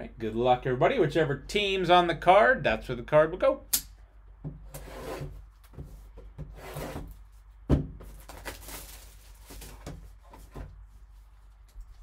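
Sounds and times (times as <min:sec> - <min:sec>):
cardboard rubbing and sliding: 0:04.7 - 0:07.3.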